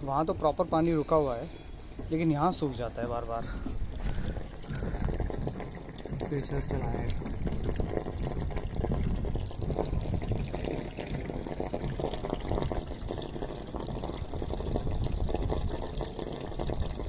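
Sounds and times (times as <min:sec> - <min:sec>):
water gushing from a pipe: 0:00.3 - 0:17.0
water splashing on concrete: 0:04.0 - 0:17.0.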